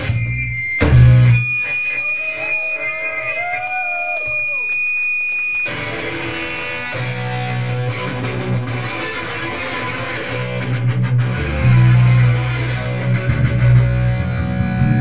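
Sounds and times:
bass guitar pounding: 0:00.0 - 0:01.6, 0:09.9 - 0:15.0
live rock band playing: 0:00.0 - 0:01.8, 0:05.7 - 0:15.0.

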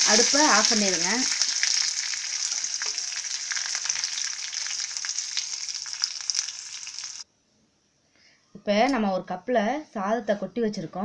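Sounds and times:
spices sizzling in hot oil: 0:00.0 - 0:07.3.

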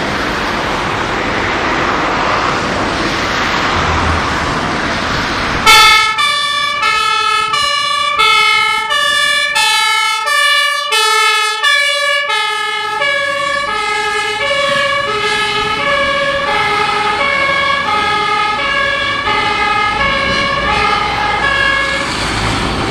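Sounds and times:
fire engine two-tone siren: 0:05.6 - 0:22.9.

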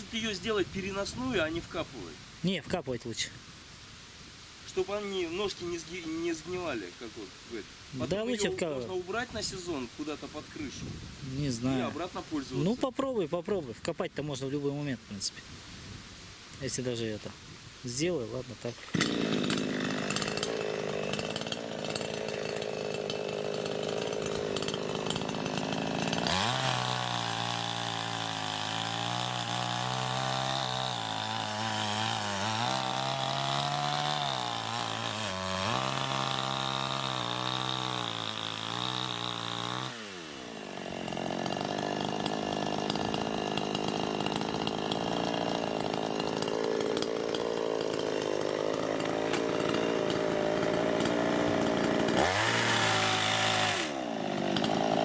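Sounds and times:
chainsaw engine running: 0:18.8 - 0:55.0.

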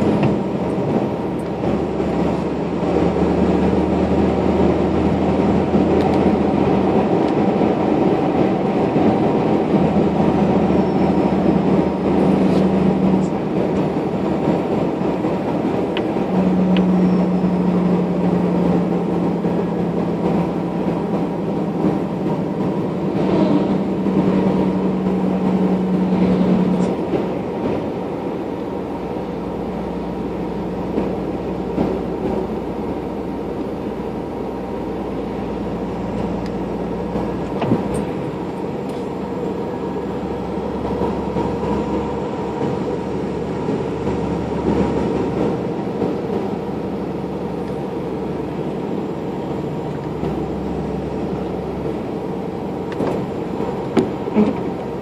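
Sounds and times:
low engine hum: 0:00.0 - 0:55.0
road noise inside vehicle: 0:00.0 - 0:55.0.

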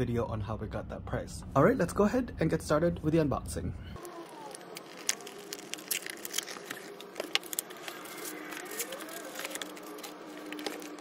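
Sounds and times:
cardboard and packing rustling: 0:04.0 - 0:11.0.

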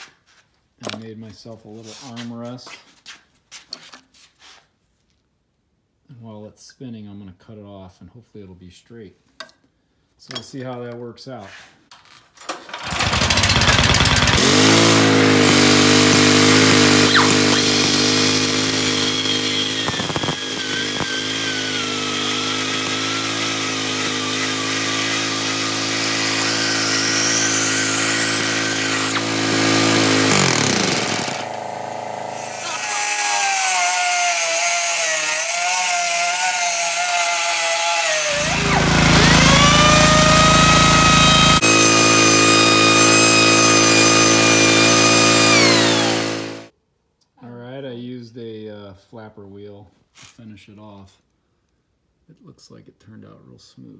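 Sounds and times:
engine running: 0:12.8 - 0:33.2, 0:38.2 - 0:46.7
cut-off wheel grinding whine: 0:12.9 - 0:46.7.

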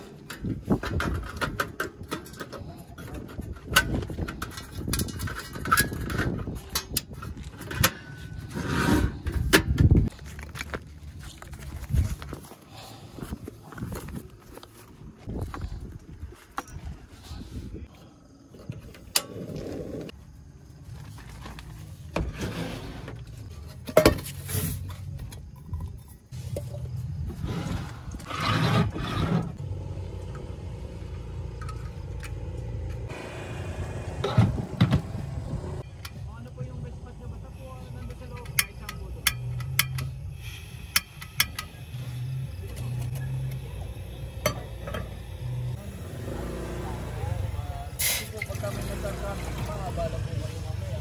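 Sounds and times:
camp stove clicks and knocks: 0:00.2 - 0:08.2, 0:38.1 - 0:40.2, 0:40.9 - 0:41.8
low hum: 0:29.4 - 0:40.2.

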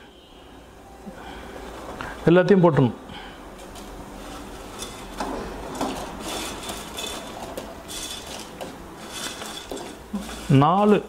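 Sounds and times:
noodles rustling and scraping: 0:03.6 - 0:11.0.

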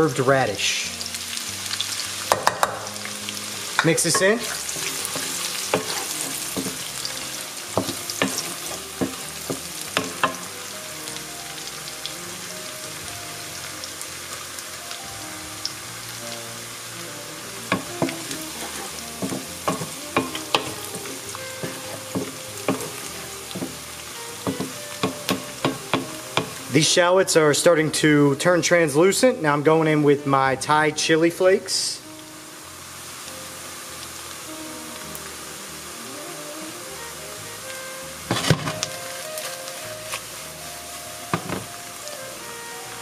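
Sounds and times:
oil sizzling in a wok: 0:00.0 - 0:43.0
wooden spoon knocking on wok: 0:02.3 - 0:02.9, 0:03.8 - 0:06.8, 0:07.8 - 0:10.5, 0:17.7 - 0:23.8, 0:24.4 - 0:26.7, 0:41.3 - 0:41.7.

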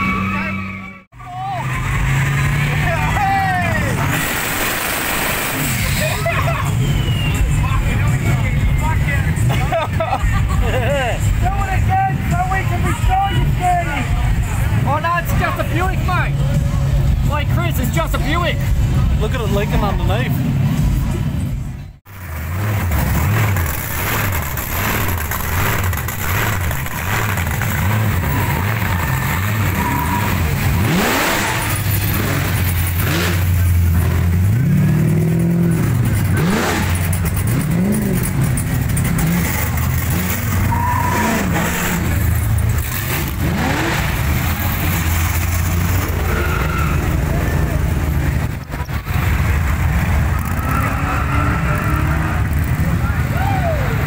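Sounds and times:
short engine revs: 0:01.6 - 0:07.4, 0:22.2 - 0:53.2
muscle car engines idling: 0:04.9 - 0:50.6.

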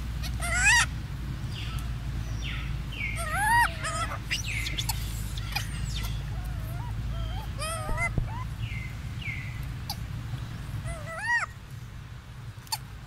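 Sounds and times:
steady low rumble: 0:00.0 - 0:13.0
baby monkeys crying: 0:00.2 - 0:00.9, 0:03.0 - 0:08.9, 0:09.8 - 0:10.1, 0:10.7 - 0:11.6.

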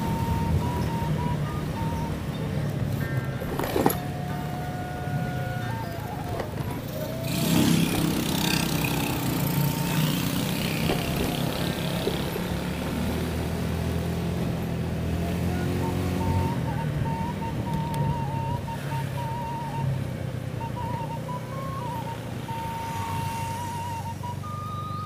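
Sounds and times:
wind and road noise: 0:00.0 - 0:25.0
motorcycle engine running: 0:00.4 - 0:16.8.

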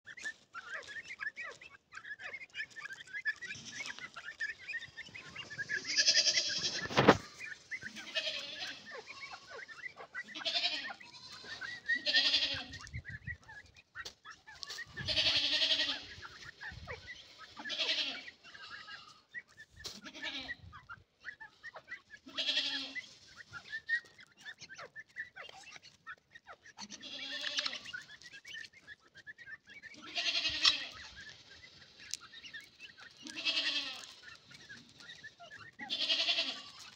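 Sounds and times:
chicks peeping: 0:00.0 - 0:36.9
drawn-out bleating call: 0:05.5 - 0:13.0, 0:14.7 - 0:16.4, 0:17.4 - 0:19.3, 0:19.9 - 0:20.8, 0:22.2 - 0:23.0, 0:26.8 - 0:28.0, 0:29.9 - 0:31.4, 0:33.0 - 0:34.2, 0:35.6 - 0:36.9.

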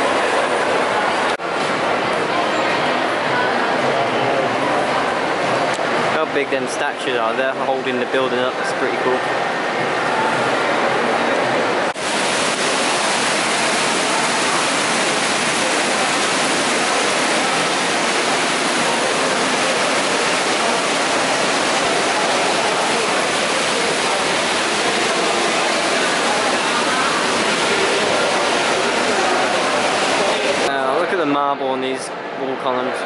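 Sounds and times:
faint crowd chatter: 0:00.0 - 0:33.0
fountain water splashing: 0:11.8 - 0:31.2.

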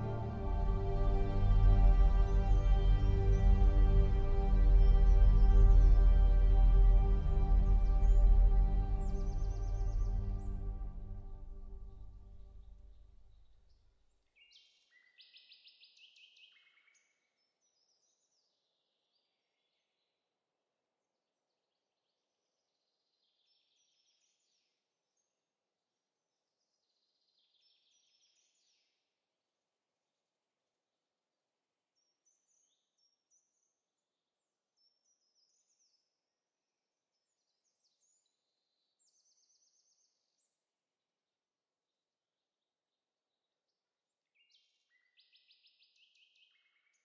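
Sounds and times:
faint birdsong chirps and trills: 0:00.0 - 0:20.2, 0:26.6 - 0:29.0, 0:32.0 - 0:36.1, 0:37.1 - 0:40.6, 0:42.6 - 0:47.0.

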